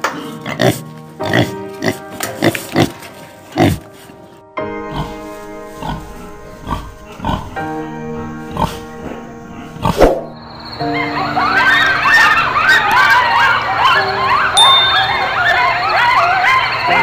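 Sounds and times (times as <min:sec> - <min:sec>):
pigs grunting: 0:00.0 - 0:12.8
background music: 0:00.0 - 0:17.0.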